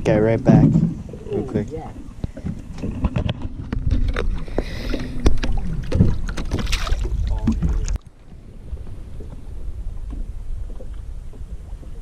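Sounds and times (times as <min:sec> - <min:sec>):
water sloshing: 0:00.4 - 0:12.0.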